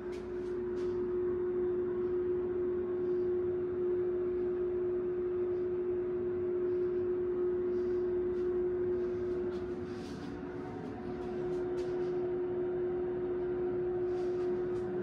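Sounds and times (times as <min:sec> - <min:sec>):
ventilation fan humming: 0:00.0 - 0:15.0.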